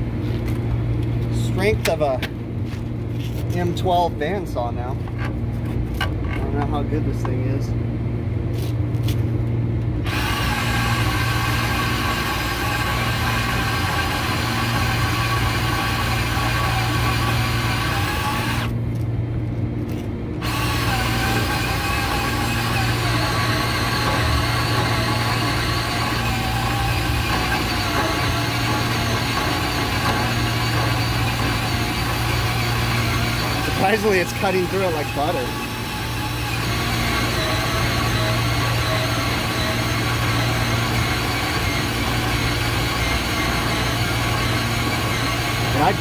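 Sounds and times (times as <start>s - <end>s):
band saw motor humming: 10.0s - 18.8s, 20.4s - 46.0s
saw blade cutting metal: 20.4s - 46.0s.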